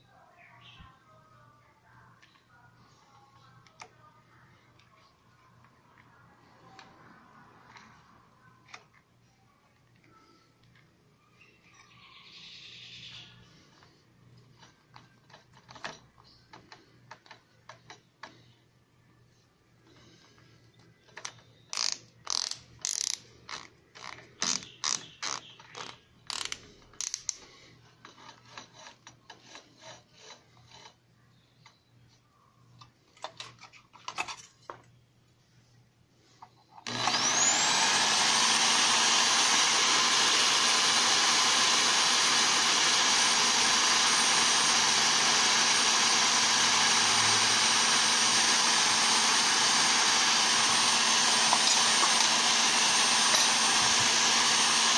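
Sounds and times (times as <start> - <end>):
drill chuck clicking and rattling: 13.8 - 18.5, 21.0 - 31.0, 36.8 - 54.9
electric drill whining: 21.1 - 27.3, 36.8 - 54.9.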